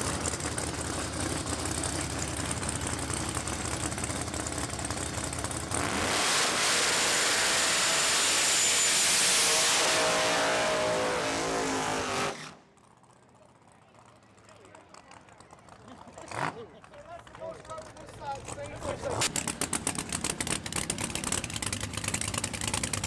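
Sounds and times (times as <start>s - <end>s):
truck engines idling: 0.0s - 5.9s, 12.4s - 23.0s
engines at full throttle: 0.0s - 23.0s.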